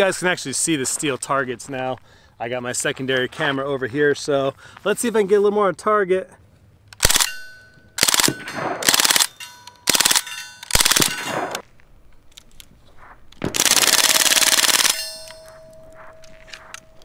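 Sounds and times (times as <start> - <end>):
bb gun firing bursts: 7.0 - 7.4, 8.0 - 11.6, 13.4 - 15.2
steel targets pinging: 7.3 - 11.6, 13.4 - 17.0.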